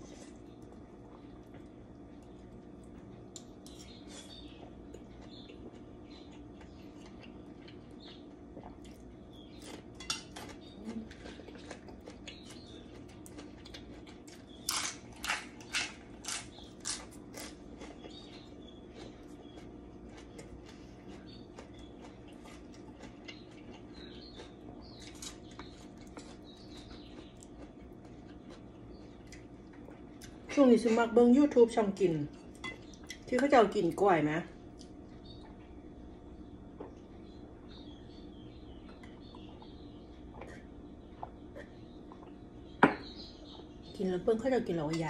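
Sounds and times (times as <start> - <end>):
steady low hum: 0.0 - 45.0
cutlery clinking on steel bowls: 10.0 - 10.5.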